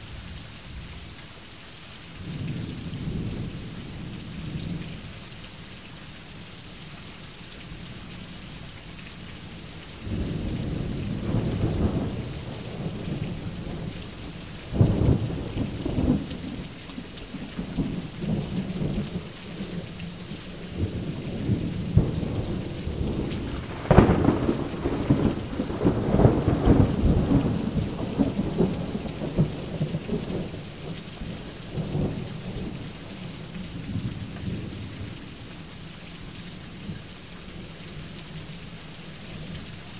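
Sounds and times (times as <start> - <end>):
heavy rain: 0.0 - 39.9
rolling thunder: 20.8 - 32.8
thunder cracks: 23.0 - 29.5.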